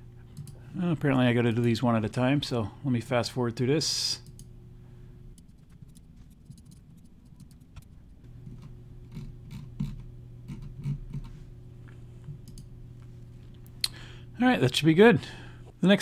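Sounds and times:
low steady hum: 0:00.0 - 0:16.0
computer mouse clicks: 0:12.4 - 0:12.7.

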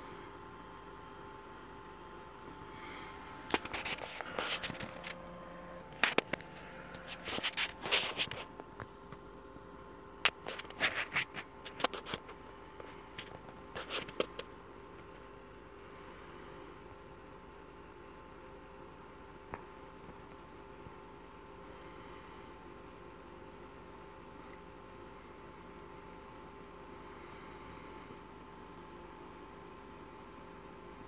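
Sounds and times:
faint steady hum: 0:00.0 - 0:31.0
rapid clicking and scraping: 0:03.4 - 0:05.2, 0:05.9 - 0:08.9, 0:10.2 - 0:15.2.

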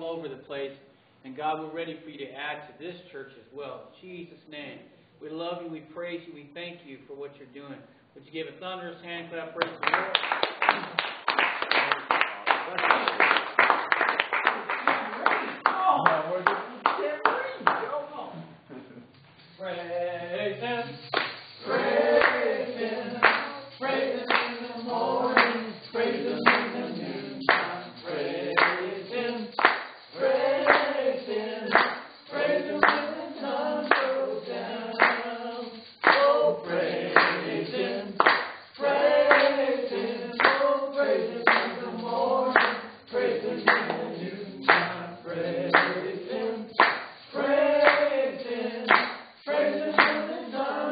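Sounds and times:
hand claps: 0:09.6 - 0:18.0, 0:21.0 - 0:50.7
congregation singing a cappella: 0:19.3 - 0:50.9
tambourine beat: 0:19.3 - 0:50.9.

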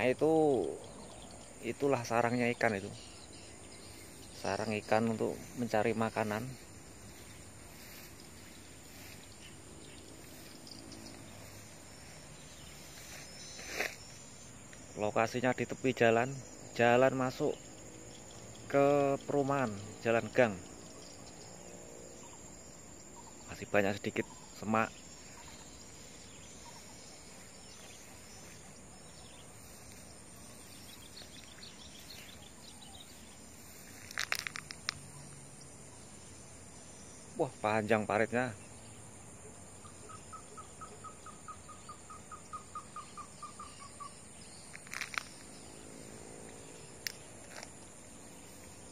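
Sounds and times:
insects calling: 0:00.0 - 0:48.9
low background noise: 0:00.0 - 0:48.9
sharp clicks: 0:34.0 - 0:35.1, 0:47.0 - 0:47.8.

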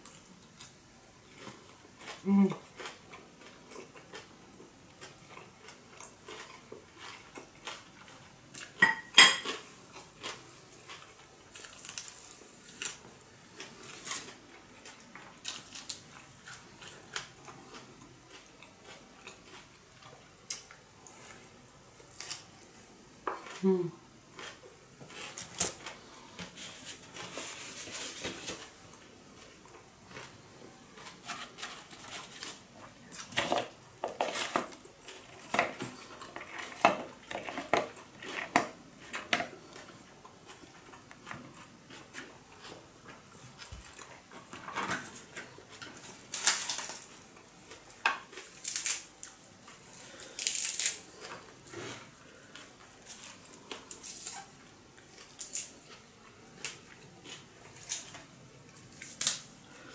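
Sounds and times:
food rustling: 0:00.0 - 0:23.6, 0:24.3 - 0:59.9
dishes clinking: 0:08.8 - 0:09.5.

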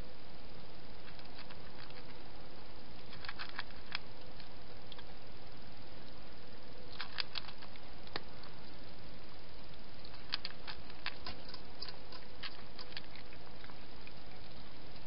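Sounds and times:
steady hiss: 0:00.0 - 0:15.0
cat eating with quick clicks: 0:03.0 - 0:05.1, 0:06.9 - 0:08.5, 0:10.0 - 0:14.2.

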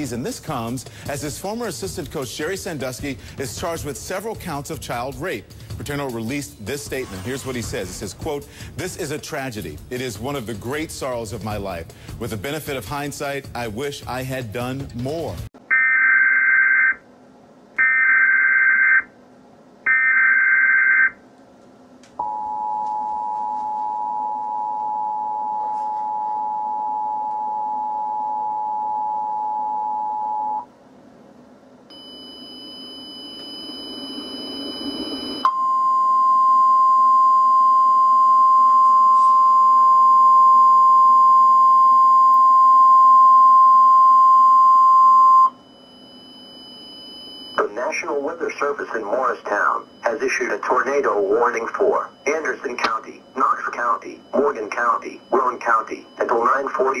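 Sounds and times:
faint hum: 0:15.6 - 0:57.0
steady alarm tone: 0:15.7 - 0:17.0, 0:17.8 - 0:19.2, 0:19.9 - 0:21.2, 0:22.2 - 0:30.7, 0:31.9 - 0:57.0
two-tone attention signal: 0:31.9 - 0:47.8, 0:51.4 - 0:57.0
data tone bursts: 0:31.9 - 0:57.0.

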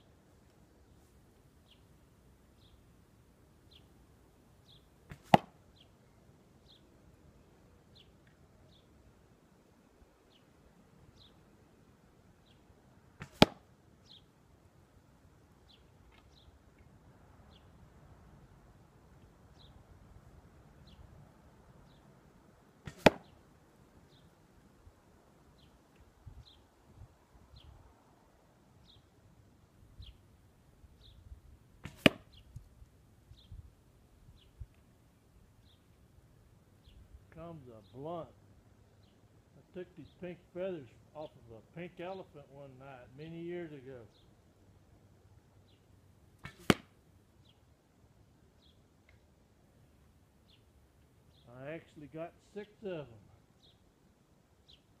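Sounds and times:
bird chirping: 0:01.6 - 0:01.9, 0:02.6 - 0:02.8, 0:03.6 - 0:03.9, 0:04.6 - 0:04.9, 0:05.7 - 0:06.9, 0:24.0 - 0:24.4, 0:28.8 - 0:29.1, 0:31.0 - 0:31.3, 0:35.6 - 0:35.9, 0:50.4 - 0:51.6, 0:53.6 - 0:53.8, 0:54.6 - 0:54.9
small birds chirping: 0:01.6 - 0:01.9, 0:02.5 - 0:02.9, 0:03.6 - 0:04.0, 0:04.6 - 0:05.0, 0:05.7 - 0:07.0, 0:07.9 - 0:09.0, 0:10.2 - 0:11.5, 0:12.4 - 0:12.7, 0:14.0 - 0:14.3, 0:15.6 - 0:16.6, 0:17.4 - 0:17.8, 0:19.5 - 0:19.8, 0:21.8 - 0:22.1, 0:24.0 - 0:24.4, 0:25.5 - 0:26.8, 0:27.5 - 0:27.9, 0:28.8 - 0:29.2, 0:30.0 - 0:30.3, 0:30.9 - 0:31.4, 0:32.0 - 0:34.8, 0:35.6 - 0:36.0, 0:36.8 - 0:39.3, 0:43.6 - 0:44.5, 0:45.6 - 0:46.0, 0:47.4 - 0:47.8, 0:48.5 - 0:48.9, 0:50.4 - 0:51.6, 0:52.6 - 0:53.9, 0:54.6 - 0:55.0
arrow striking target: 0:05.1 - 0:05.5, 0:13.2 - 0:13.6, 0:22.8 - 0:23.3, 0:31.8 - 0:32.4, 0:46.4 - 0:47.0
bow string snap: 0:46.4 - 0:47.0.

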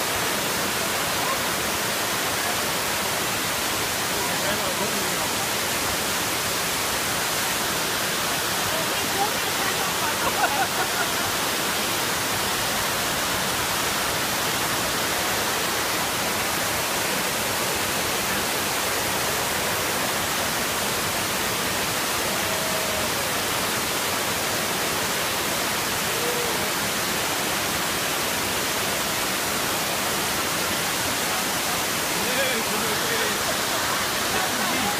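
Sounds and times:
waterfall rushing: 0:00.0 - 0:34.9.

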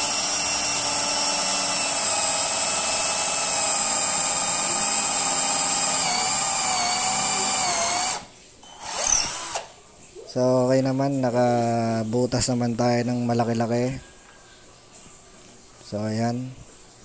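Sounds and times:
cordless drill boring into wood: 0:00.0 - 0:09.7.

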